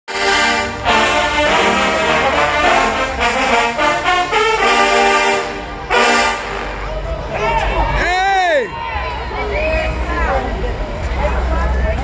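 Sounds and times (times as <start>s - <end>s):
trombones playing brass music: 0.1s - 7.2s.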